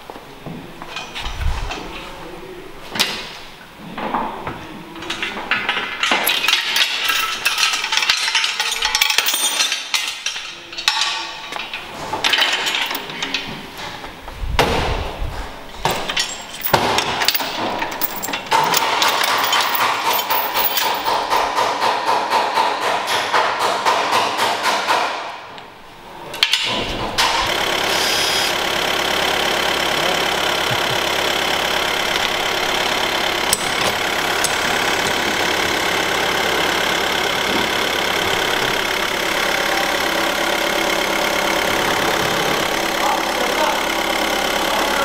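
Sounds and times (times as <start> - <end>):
metal chain clanking: 5.1 - 13.5, 15.8 - 21.5, 33.5 - 35.4.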